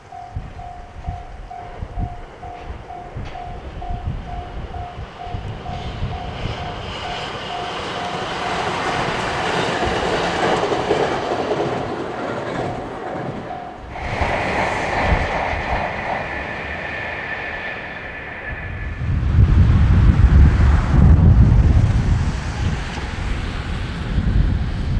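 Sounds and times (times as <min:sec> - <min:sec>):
crossing warning bell ringing: 0:00.0 - 0:10.0, 0:12.5 - 0:13.9
train wheels clattering on rails: 0:00.0 - 0:18.9
steady high whine: 0:13.4 - 0:21.6.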